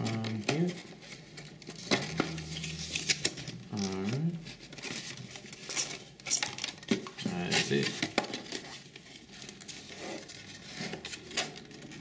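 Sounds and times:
dry clicks and rustles: 0.0s - 12.0s
paperboard box scraping and rubbing: 0.6s - 3.5s, 7.2s - 12.0s.

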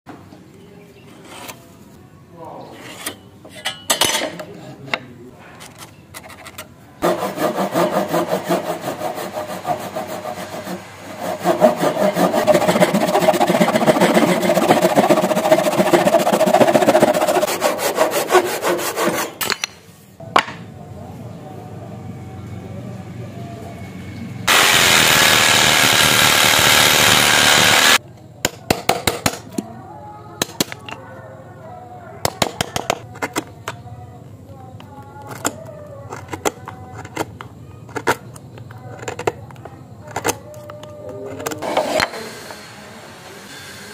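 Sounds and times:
hand saw cutting wood: 7.0s - 19.4s, 24.5s - 28.0s
loud steady hiss: 24.5s - 28.0s.

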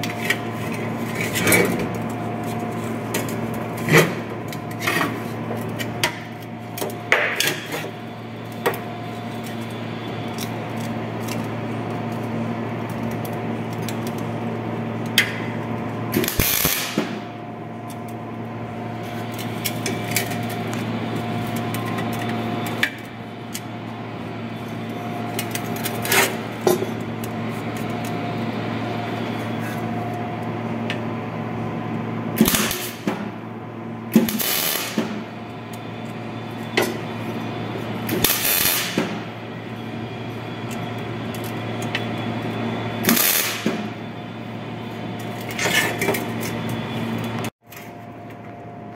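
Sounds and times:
steady hum: 0.0s - 48.9s
welding arc crackle: 1.9s - 17.4s, 32.4s - 33.1s, 34.1s - 36.0s, 37.0s - 42.0s, 43.0s - 44.1s.

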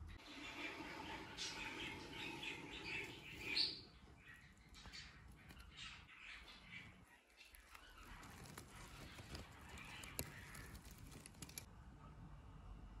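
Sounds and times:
budgerigars chattering: 0.5s - 10.8s
small clicks and rustles: 4.6s - 11.7s.

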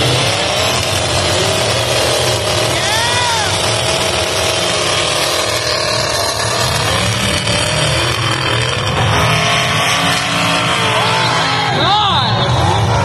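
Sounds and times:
car engines revving: 0.0s - 13.0s.

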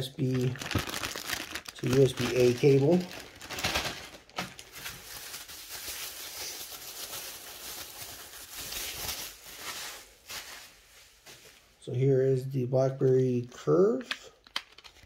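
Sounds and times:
bubble wrap crinkling: 0.0s - 11.5s.

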